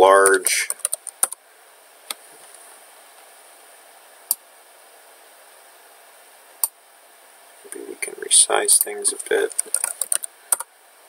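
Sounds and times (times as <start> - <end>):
computer mouse clicks: 9.5 - 10.7.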